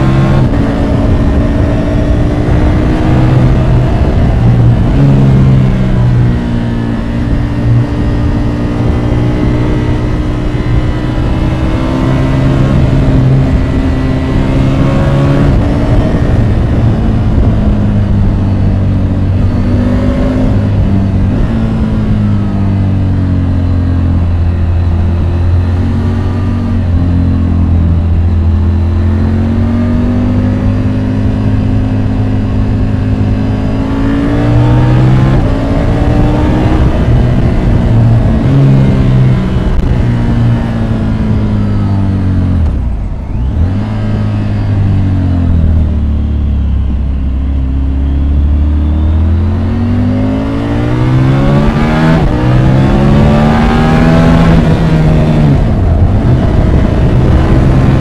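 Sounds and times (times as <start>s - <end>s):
motorcycle engine accelerating: 0.0s - 58.0s
wind and road noise: 0.0s - 58.0s.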